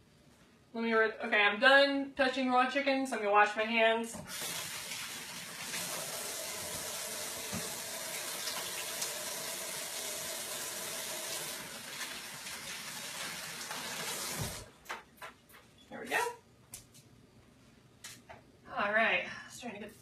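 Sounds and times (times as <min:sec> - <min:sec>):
tap water running: 0:04.1 - 0:14.8.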